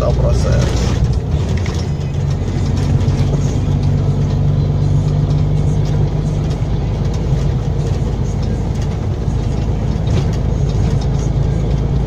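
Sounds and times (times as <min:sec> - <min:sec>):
truck diesel engine running: 0:00.0 - 0:12.0.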